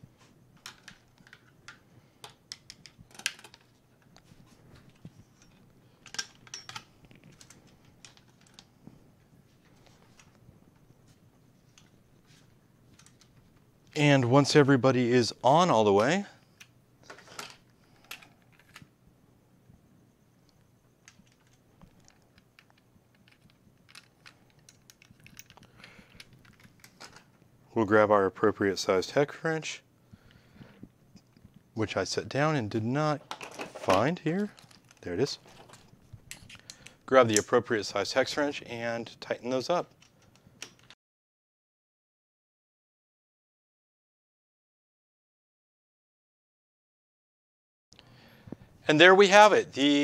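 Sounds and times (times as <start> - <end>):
wires and connectors clicking: 0.5 - 8.9, 20.4 - 27.4, 33.3 - 37.5.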